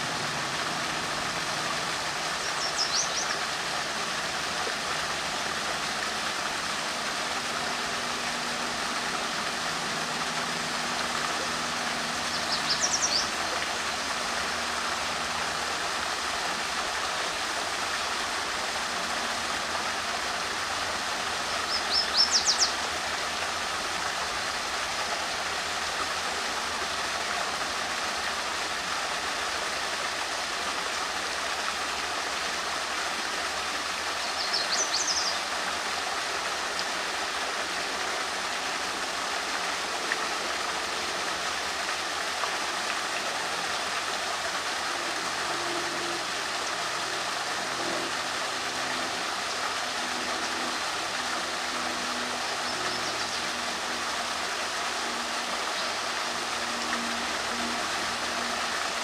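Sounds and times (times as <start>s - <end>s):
flowing stream water: 0.0s - 59.0s
songbird chirping: 2.5s - 3.4s.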